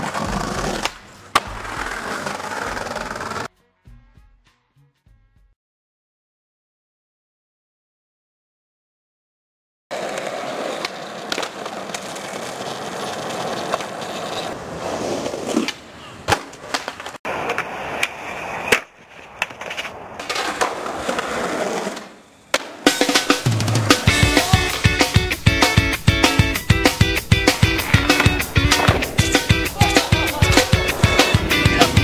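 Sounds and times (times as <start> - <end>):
skateboard clacking on ground: 0.0 - 3.5, 9.9 - 14.6, 27.4 - 32.0
skateboard wheels rolling on concrete: 0.0 - 3.5, 9.9 - 32.0.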